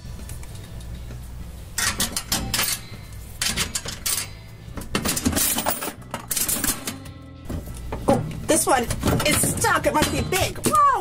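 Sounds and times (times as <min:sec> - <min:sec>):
coins clinking into vending machine: 0:01.8 - 0:07.1.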